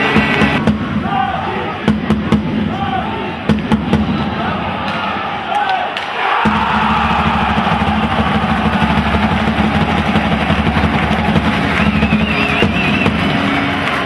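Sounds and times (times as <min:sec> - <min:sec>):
background music: 0:06.5 - 0:14.0.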